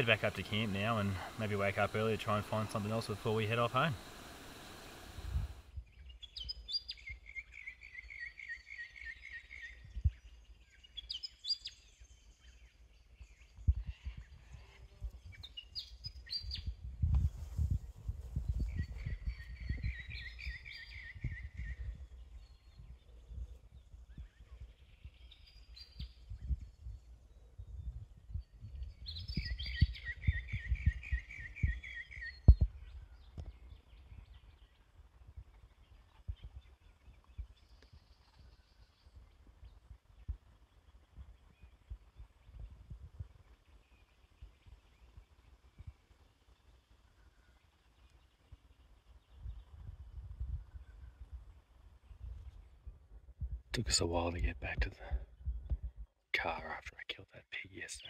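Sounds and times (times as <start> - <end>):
birds calling sharp high notes: 0.0 - 5.6.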